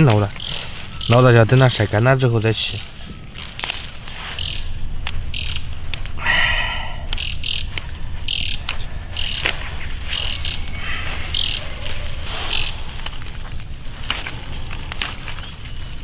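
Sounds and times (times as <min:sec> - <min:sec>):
pea plants rustling and snapping: 0:00.0 - 0:06.2, 0:07.0 - 0:16.0
birds chirping: 0:00.0 - 0:16.0.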